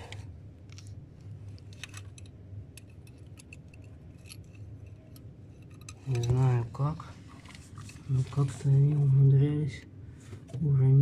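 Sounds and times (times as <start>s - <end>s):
low steady hum: 0.0s - 11.0s
metallic clicks and clinks: 1.7s - 6.4s.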